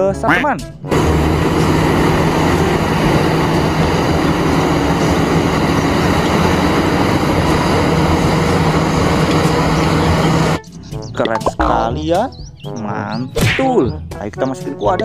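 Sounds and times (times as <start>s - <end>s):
excavator engine and hydraulics: 0.8s - 11.8s.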